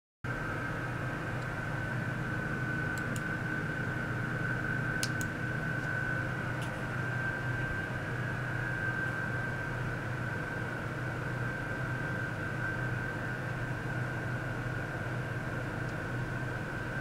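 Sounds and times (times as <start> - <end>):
computer hum with high whine: 0.2 - 17.0.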